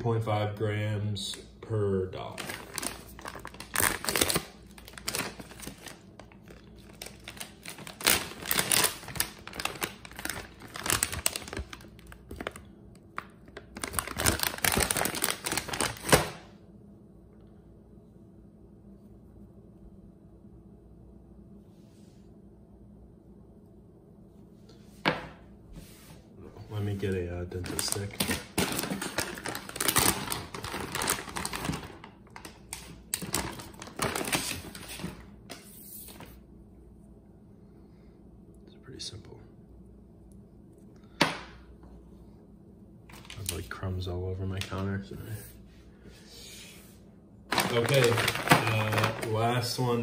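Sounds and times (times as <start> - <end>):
plastic pouch crinkling: 2.3 - 16.4, 27.0 - 35.1, 47.5 - 49.8.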